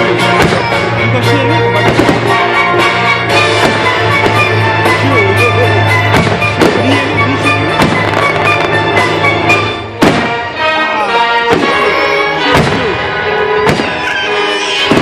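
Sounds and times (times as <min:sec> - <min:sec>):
loud music: 0:00.0 - 0:15.0
firework shells bursting: 0:05.9 - 0:10.5, 0:11.5 - 0:15.0.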